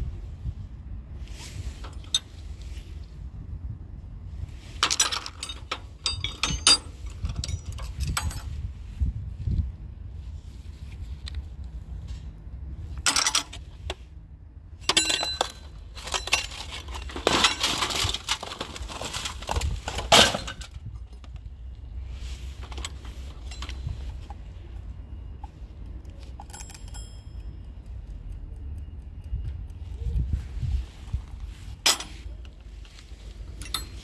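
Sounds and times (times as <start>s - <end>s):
steady low rumble: 0.0s - 34.0s
metal tools clattering in basket: 4.8s - 8.5s, 13.1s - 13.6s, 14.8s - 21.2s, 22.6s - 24.1s, 31.8s - 32.3s, 33.6s - 34.0s
short metallic ring: 26.4s - 27.6s.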